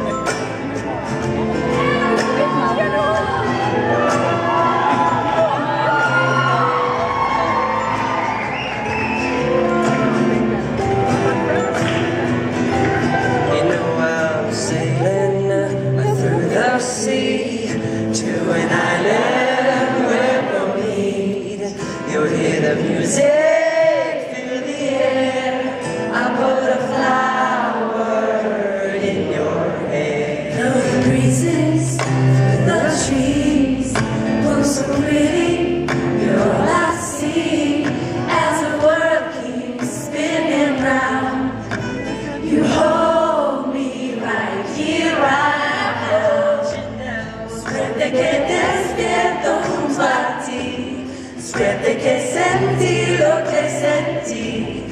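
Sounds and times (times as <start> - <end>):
upright bass: 0.0 - 19.3, 39.8 - 54.9
acoustic guitar: 0.0 - 54.9
voices singing in harmony: 0.0 - 54.9.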